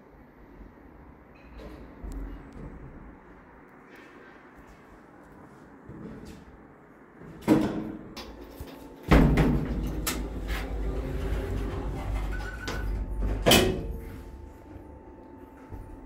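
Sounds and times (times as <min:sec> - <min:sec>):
steady low hum: 0:00.0 - 0:16.0
sliding doors closing with thud: 0:07.4 - 0:14.9.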